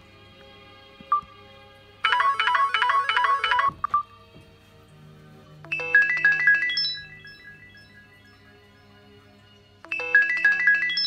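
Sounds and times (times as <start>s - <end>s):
electronic ringtone melodies: 2.0s - 4.0s, 5.7s - 9.0s, 9.8s - 11.0s.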